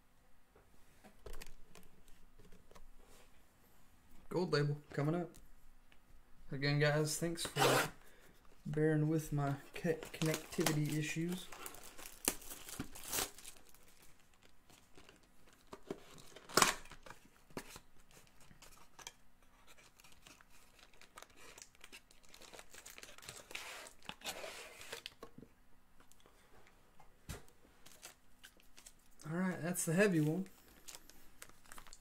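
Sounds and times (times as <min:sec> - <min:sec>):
wrapper crinkling: 0:09.6 - 0:25.2, 0:27.8 - 0:32.0
plastic wrapper ripping: 0:10.0 - 0:17.2, 0:19.8 - 0:25.2, 0:30.1 - 0:32.0.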